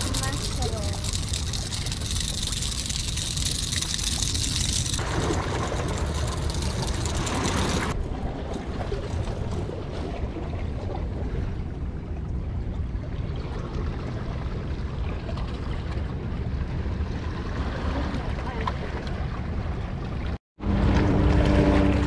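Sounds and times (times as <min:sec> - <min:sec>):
water washing against rocks: 0:00.0 - 0:08.0.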